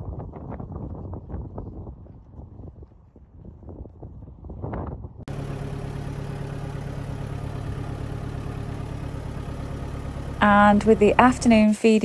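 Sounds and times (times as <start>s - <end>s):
tractor diesel engine running: 5.2s - 12.0s.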